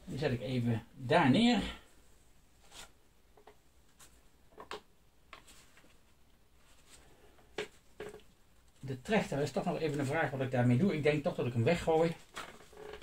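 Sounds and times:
paper ticks and rustles: 12.0 - 13.0.

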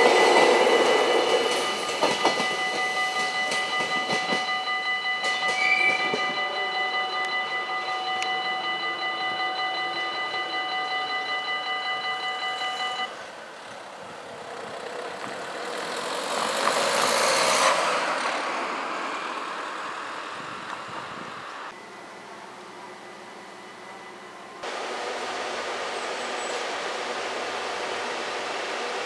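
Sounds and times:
level crossing bell clanging: 0.0 - 13.1.

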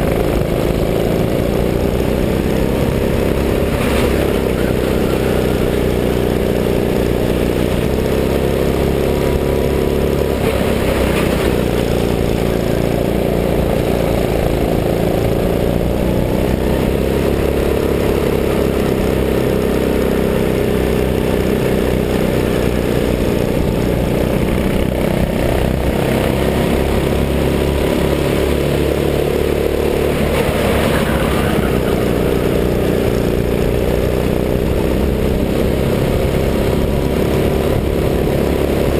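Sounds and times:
go-kart engine revving: 0.0 - 38.9.

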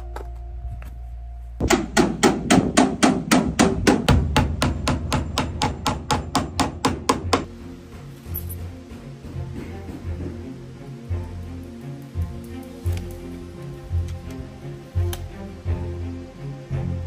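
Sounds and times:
hammer nailing metal to wood: 1.6 - 7.5.

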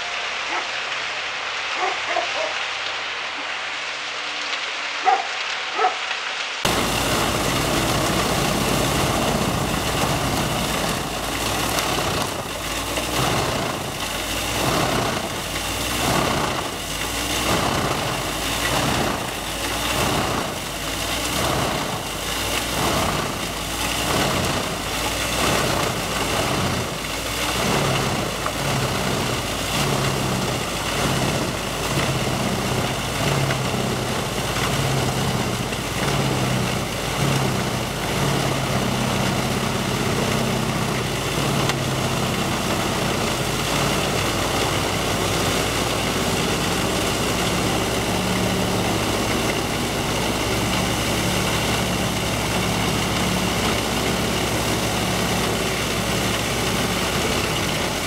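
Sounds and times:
wood chipper engine drone: 0.0 - 58.0.

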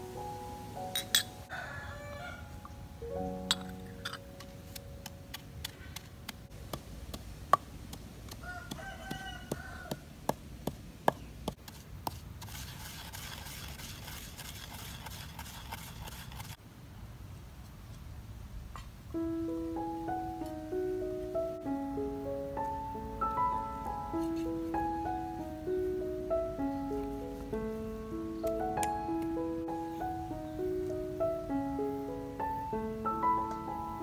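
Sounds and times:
rooster crowing: 1.4 - 2.8, 8.4 - 10.1
pestle pounding in a mortar: 6.6 - 12.2.

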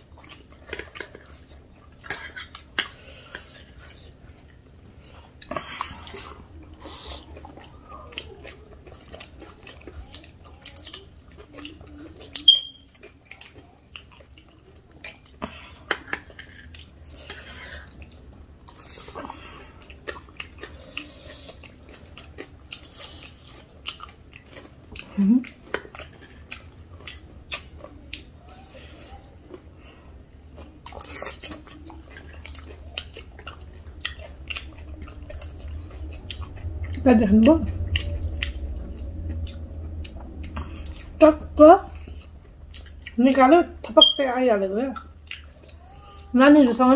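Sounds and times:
chewing and crunching food: 0.0 - 46.9
short low hum: 35.1 - 44.0.

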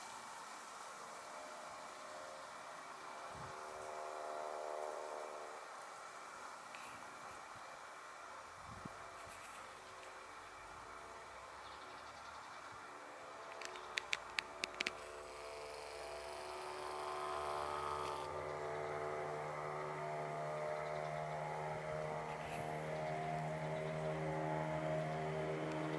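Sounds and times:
motor droning: 6.6 - 25.9
sharp clicks: 13.5 - 15.1.

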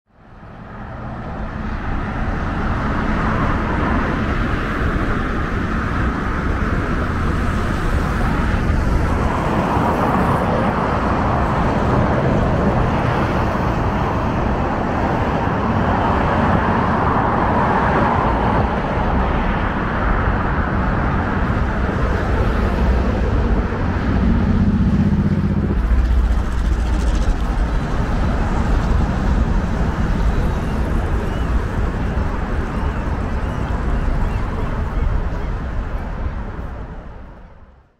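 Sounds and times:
cars passing: 0.1 - 37.9
city road traffic: 0.1 - 37.9.

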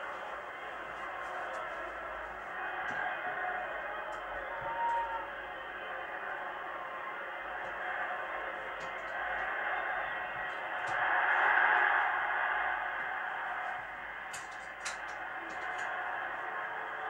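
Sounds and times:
stadium crowd noise: 0.0 - 17.0.

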